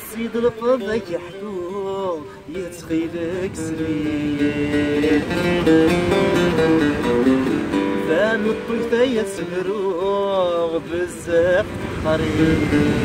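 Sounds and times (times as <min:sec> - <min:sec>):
man singing: 0:00.0 - 0:13.0
plucked mandole: 0:00.0 - 0:13.0.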